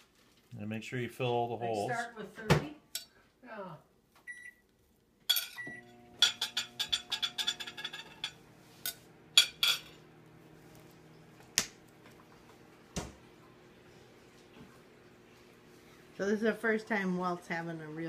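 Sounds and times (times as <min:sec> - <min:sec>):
microwave oven beeping: 0:04.3 - 0:04.7, 0:05.6 - 0:13.9
cutlery scraping on ceramic plate: 0:05.3 - 0:10.0
microwave oven humming: 0:05.6 - 0:18.0.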